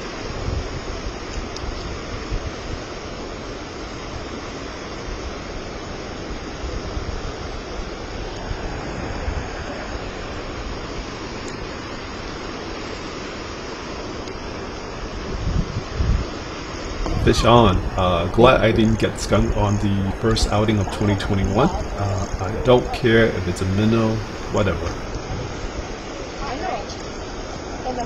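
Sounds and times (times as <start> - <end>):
wind buffeting microphone: 15.2 - 16.3, 17.0 - 26.0
river rapids rushing: 17.1 - 28.0.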